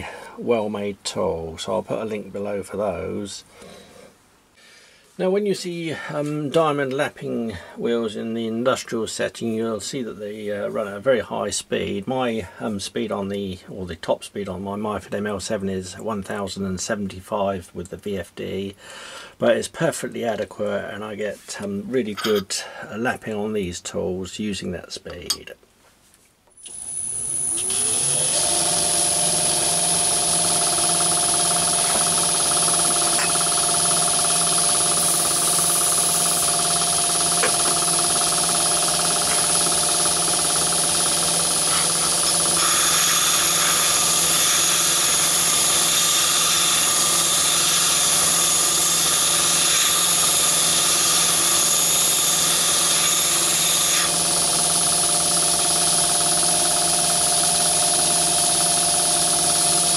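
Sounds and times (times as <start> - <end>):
lathe motor humming with whine: 26.7 - 59.9.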